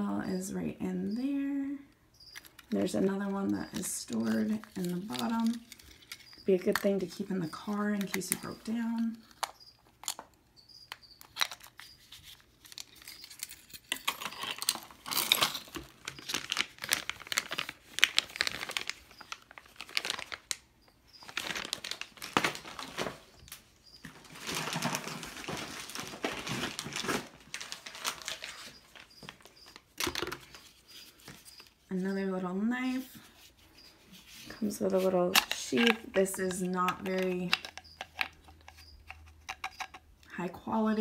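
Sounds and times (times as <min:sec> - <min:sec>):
items handled in cardboard box: 0:02.5 - 0:10.2, 0:11.3 - 0:20.6, 0:21.2 - 0:23.4, 0:24.0 - 0:31.9
packaging crinkling: 0:03.7 - 0:07.0, 0:11.2 - 0:31.9, 0:34.2 - 0:40.0.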